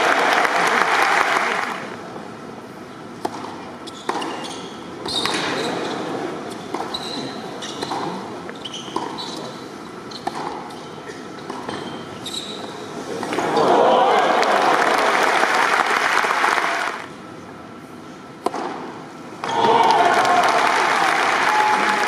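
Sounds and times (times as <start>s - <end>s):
loud arena crowd: 0.0s - 2.0s, 13.3s - 17.1s, 19.4s - 22.0s
shoes squeaking on court: 3.8s - 12.9s
racket hitting tennis ball: 18.4s - 18.9s.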